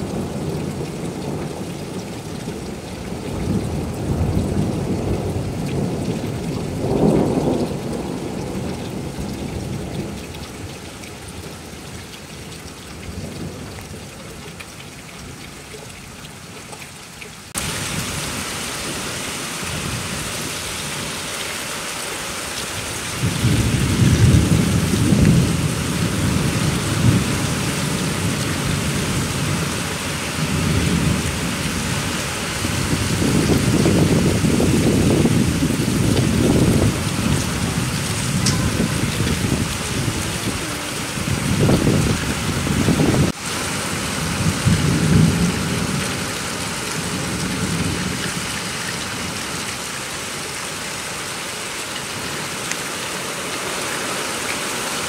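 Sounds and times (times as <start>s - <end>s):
rain falling: 0.0s - 55.0s
thunder rumbling: 22.8s - 43.4s, 44.0s - 48.2s.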